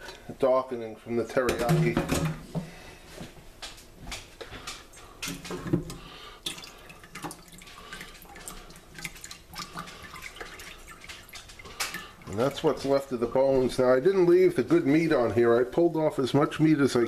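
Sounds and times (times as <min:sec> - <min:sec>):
broth dripping into a pot: 0:04.8 - 0:13.3.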